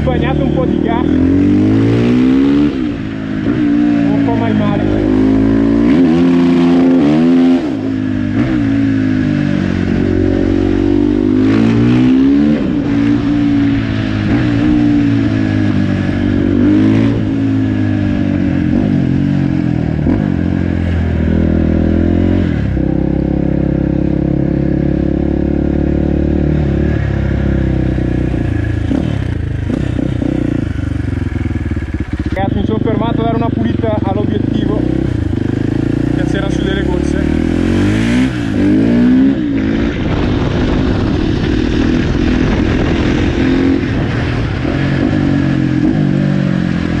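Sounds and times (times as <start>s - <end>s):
motorcycle engine revving: 0.0s - 47.0s.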